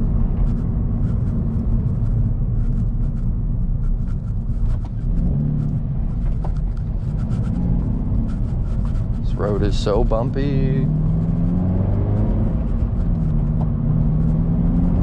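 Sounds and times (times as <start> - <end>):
car engine and exhaust droning: 0.0 - 15.0
road noise: 0.0 - 15.0.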